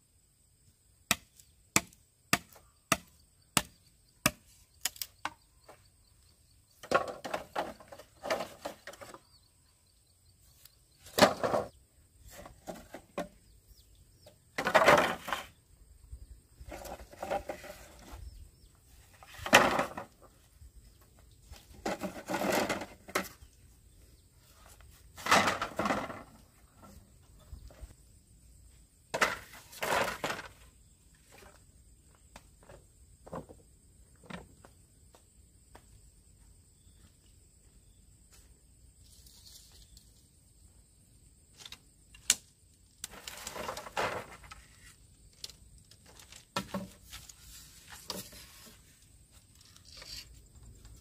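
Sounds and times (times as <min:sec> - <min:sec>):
bamboo poles clattering: 0:06.7 - 0:09.3, 0:11.0 - 0:13.5, 0:14.2 - 0:15.6, 0:16.6 - 0:18.3, 0:18.9 - 0:23.6, 0:24.5 - 0:27.9, 0:29.1 - 0:30.7, 0:41.5 - 0:51.0.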